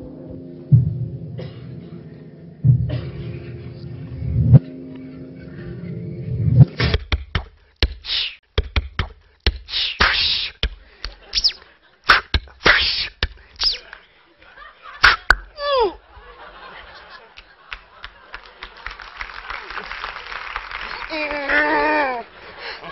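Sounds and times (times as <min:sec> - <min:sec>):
mouth clicks and pops: 0:06.8 - 0:14.0, 0:15.0 - 0:15.5
mouth hissing: 0:08.0 - 0:08.4, 0:09.6 - 0:10.7, 0:11.3 - 0:13.9
high falling whistles: 0:11.4 - 0:11.6, 0:13.6 - 0:13.9.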